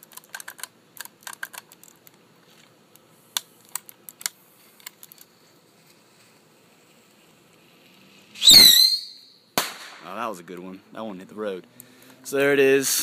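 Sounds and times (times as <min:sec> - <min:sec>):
bottle rocket launch whistle: 0:08.4 - 0:09.3.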